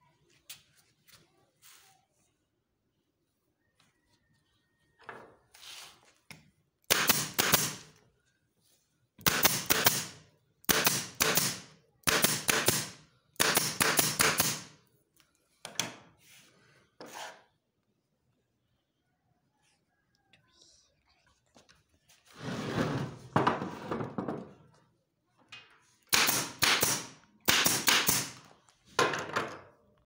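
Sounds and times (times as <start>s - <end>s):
staple gun firing: 26.1s - 28.4s.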